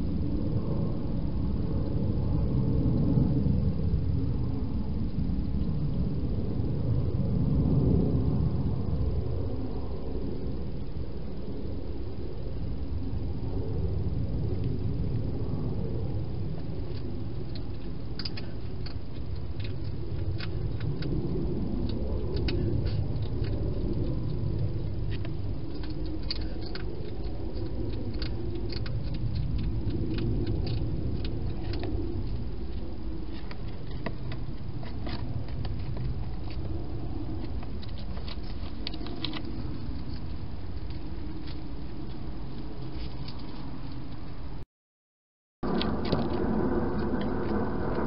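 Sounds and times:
low background rumble: 0:00.0 - 0:44.6, 0:45.6 - 0:48.0
hedgehog crunching dry food: 0:16.8 - 0:43.7.

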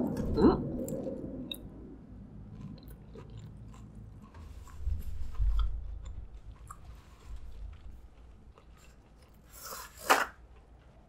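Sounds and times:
person chewing: 0:02.3 - 0:11.0.

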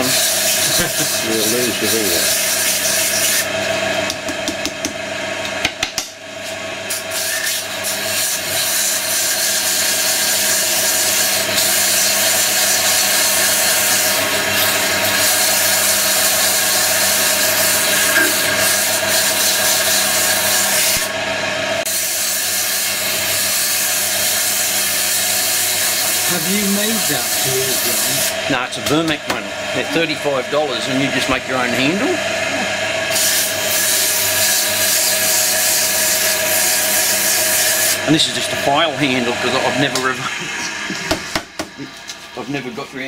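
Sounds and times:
sandpaper rasping on wood: 0:00.0 - 0:03.5, 0:06.9 - 0:21.1, 0:21.9 - 0:28.4, 0:33.1 - 0:38.0
wood lathe humming: 0:00.0 - 0:05.9, 0:06.6 - 0:42.8.

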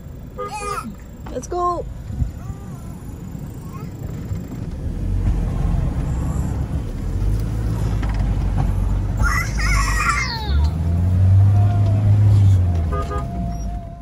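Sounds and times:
off-road vehicle engine rumbling: 0:00.0 - 0:14.0
light knocks and creaks: 0:07.8 - 0:08.9.

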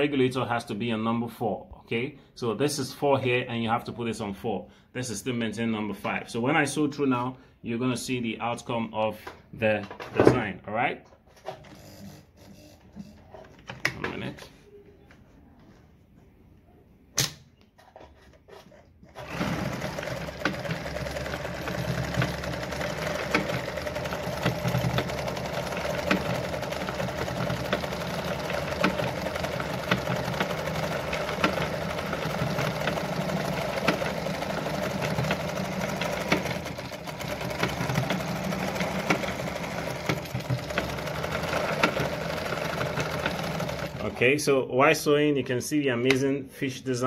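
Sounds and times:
sewing machine stitching: 0:11.4 - 0:13.6, 0:17.8 - 0:44.4.

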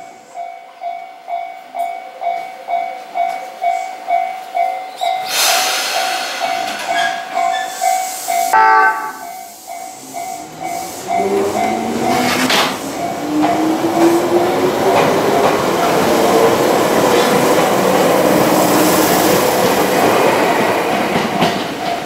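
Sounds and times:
railway crossing bell ringing: 0:00.0 - 0:05.3, 0:06.4 - 0:12.3
air hiss: 0:05.2 - 0:08.6
train horn blast: 0:08.5 - 0:09.5.

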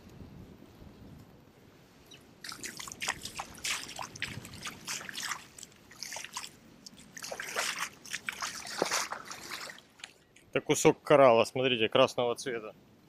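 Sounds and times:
feet wading through shallow water: 0:02.4 - 0:10.4.

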